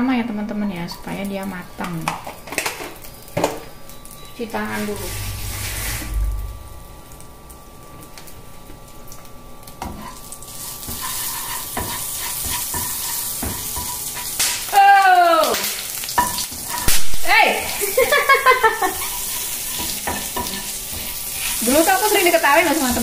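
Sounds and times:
shrimp paste sizzling in a pan: 0:09.8 - 0:23.0
spatula scraping a pan: 0:10.0 - 0:14.4, 0:18.7 - 0:23.0.

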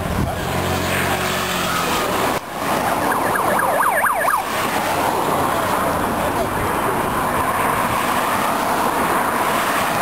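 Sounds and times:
vehicle engines passing: 0:00.0 - 0:10.0
police siren yelping: 0:02.7 - 0:04.6.

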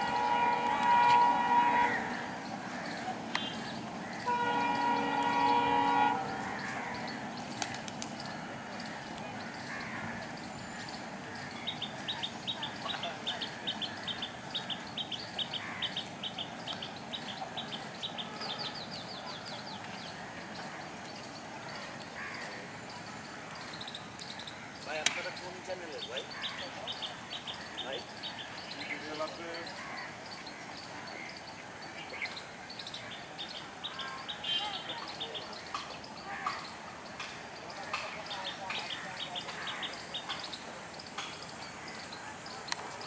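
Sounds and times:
locomotive horn blasts: 0:00.0 - 0:02.4, 0:04.2 - 0:06.6, 0:18.2 - 0:19.0
locomotive engine rumbling: 0:00.0 - 0:07.5.

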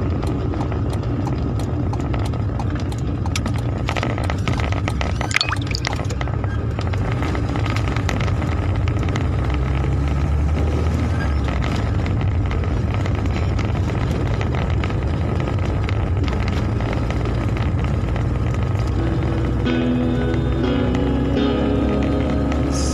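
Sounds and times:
car engine and tyres on wet road: 0:00.0 - 0:05.3, 0:06.0 - 0:22.9
raindrops hitting glass: 0:05.1 - 0:06.2.

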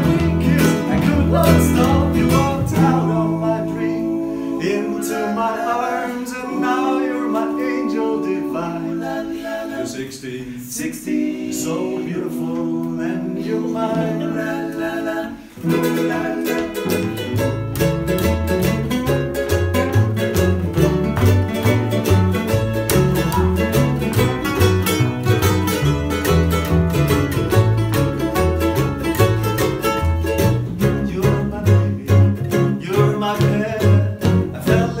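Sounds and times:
strummed acoustic guitar: 0:00.0 - 0:04.2, 0:15.5 - 0:35.0
mandolin: 0:00.0 - 0:09.8, 0:11.8 - 0:35.0
plucked double bass: 0:00.0 - 0:10.0, 0:11.1 - 0:35.0
men singing in harmony: 0:00.0 - 0:17.4, 0:30.7 - 0:35.0
ukulele: 0:00.0 - 0:35.0.

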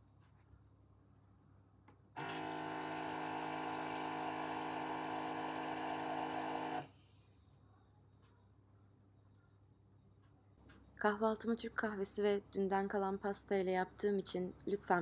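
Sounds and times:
electric pump humming: 0:02.2 - 0:06.9.

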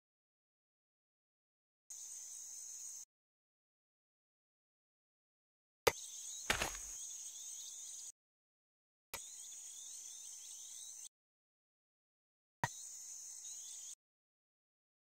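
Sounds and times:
insect hiss: 0:01.9 - 0:03.1, 0:05.9 - 0:08.1, 0:12.7 - 0:14.0
small birds chirping: 0:05.9 - 0:08.1, 0:09.2 - 0:11.1, 0:12.6 - 0:14.0
thump: 0:06.5 - 0:06.9.

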